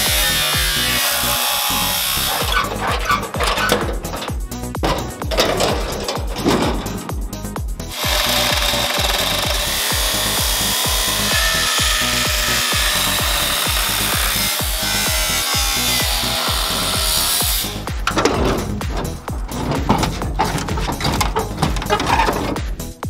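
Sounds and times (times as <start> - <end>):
angle grinder cutting sheet steel: 0.0 - 4.4, 7.9 - 18.0
background music with steady beat: 0.0 - 23.0.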